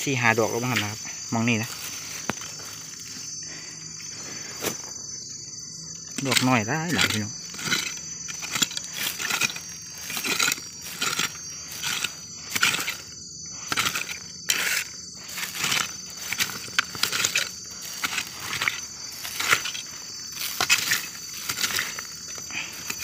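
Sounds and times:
insect drone: 0:00.0 - 0:23.0
digging tool scraping soil: 0:06.0 - 0:23.0.

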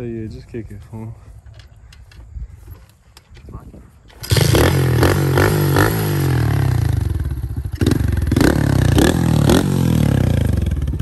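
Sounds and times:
dirt bike engine throttle blips: 0:04.1 - 0:11.0.

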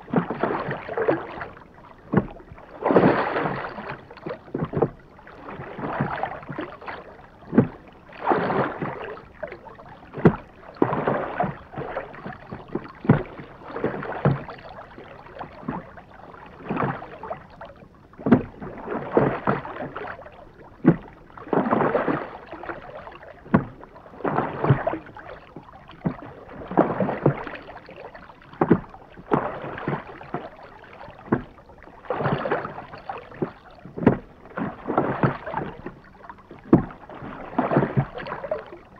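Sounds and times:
oars swishing in water: 0:00.0 - 0:38.9
oar knocks: 0:07.5 - 0:07.8, 0:10.2 - 0:13.3, 0:18.2 - 0:19.6, 0:23.5 - 0:24.9, 0:28.5 - 0:30.4, 0:33.4 - 0:38.6.

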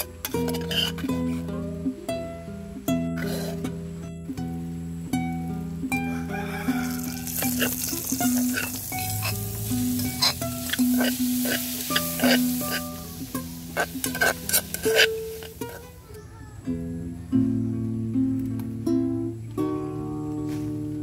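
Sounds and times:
metal spoon scraping a pot: 0:00.0 - 0:01.4, 0:06.7 - 0:15.8
oil sizzling in a pot: 0:06.3 - 0:15.9.

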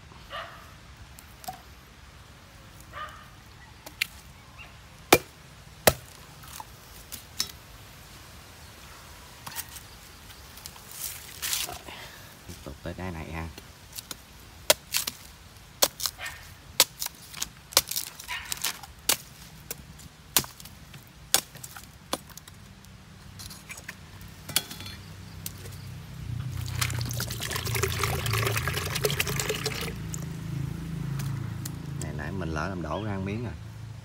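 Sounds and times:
coconut water pouring into jug: 0:26.5 - 0:30.3.

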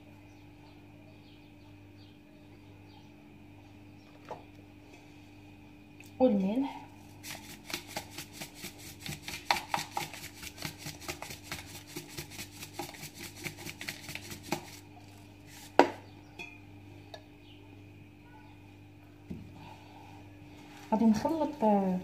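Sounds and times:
spoon clinking against metal pot: 0:16.4 - 0:16.6.

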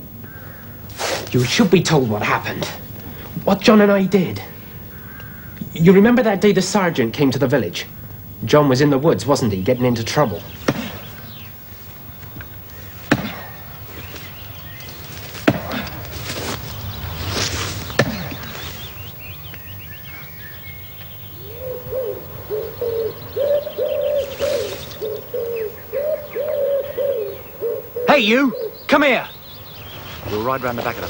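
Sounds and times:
woodland birdsong: 0:00.0 - 0:31.0
sharp knocks: 0:10.6 - 0:11.0, 0:13.1 - 0:13.6, 0:15.4 - 0:15.9, 0:18.0 - 0:18.4
low pitched repeating call: 0:17.7 - 0:31.0.

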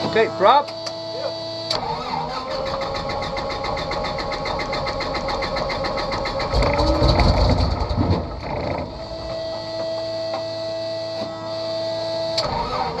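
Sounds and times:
aircraft engine firing: 0:01.7 - 0:10.3
starter cranking engine: 0:01.8 - 0:09.7
steady hum: 0:06.3 - 0:12.3.

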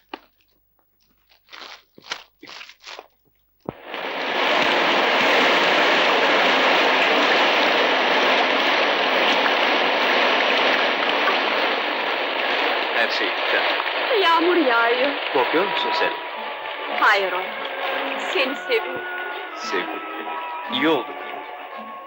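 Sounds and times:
heavy rain pouring: 0:03.7 - 0:22.0.

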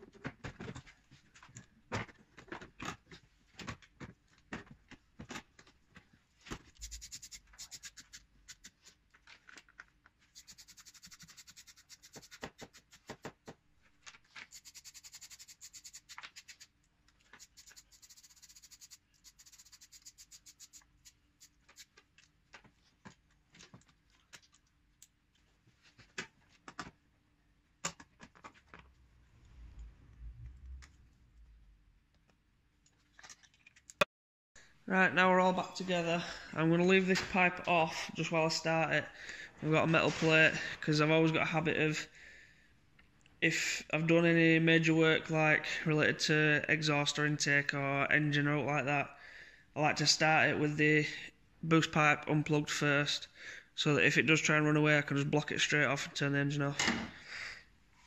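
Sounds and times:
short low rumble: 0:29.1 - 0:31.9.

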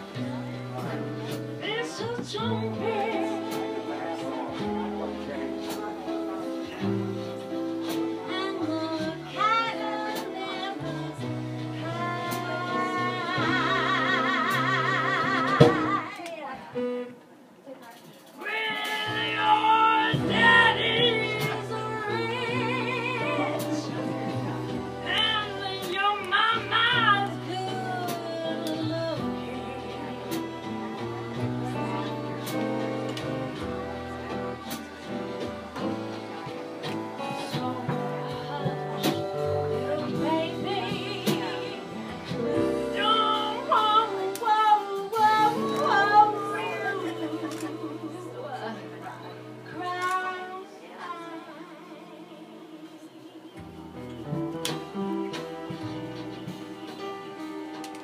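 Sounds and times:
live band music: 0:00.0 - 0:17.3, 0:17.9 - 0:58.0
keyboard accompaniment: 0:00.0 - 0:58.0
woman singing with vibrato: 0:01.6 - 0:05.4, 0:08.1 - 0:16.2, 0:18.4 - 0:53.8
fiddle: 0:18.7 - 0:58.0.

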